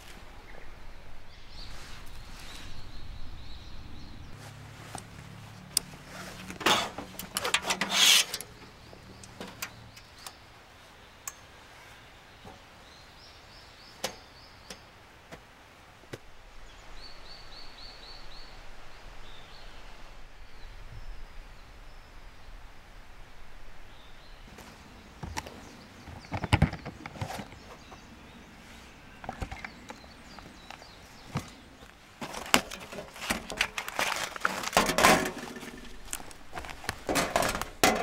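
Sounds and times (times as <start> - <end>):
bird chirping: 0.0 - 4.4, 7.1 - 15.0, 16.4 - 22.6, 23.3 - 32.2
camp gear rustling: 0.0 - 10.2, 24.4 - 38.0.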